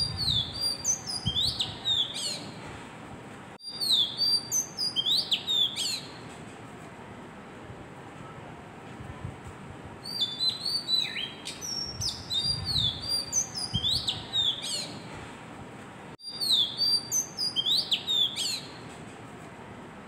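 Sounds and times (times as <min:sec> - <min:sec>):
bird singing whistled notes: 0:00.0 - 0:02.6, 0:03.6 - 0:06.2, 0:10.0 - 0:15.0, 0:16.2 - 0:18.8.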